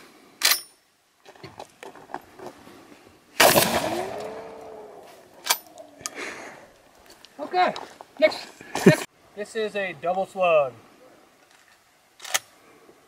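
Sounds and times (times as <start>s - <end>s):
shotgun shot with echo: 3.4s - 4.2s.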